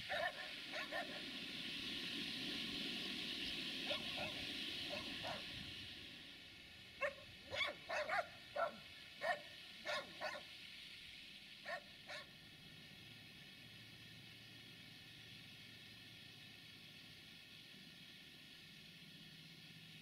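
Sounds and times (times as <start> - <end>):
dog barking: 0.1 - 1.2, 3.9 - 5.4, 7.0 - 10.5, 11.7 - 12.3.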